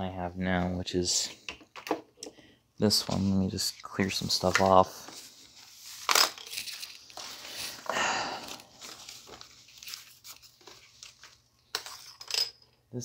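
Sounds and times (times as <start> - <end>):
papers rustling: 2.9 - 12.3.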